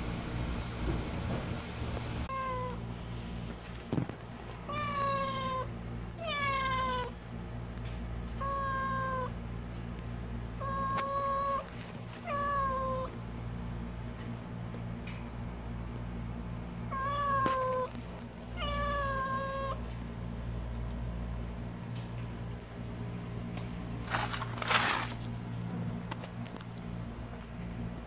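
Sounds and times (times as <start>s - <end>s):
cat meowing: 2.3s - 2.8s, 4.7s - 7.1s, 16.9s - 17.9s, 18.6s - 19.8s.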